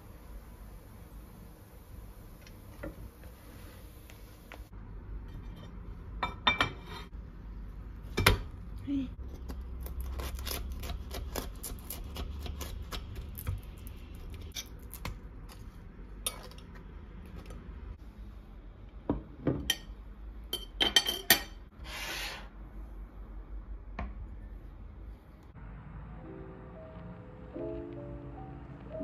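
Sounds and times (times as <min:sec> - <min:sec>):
knife cutting crisp wrap: 0:09.3 - 0:13.6.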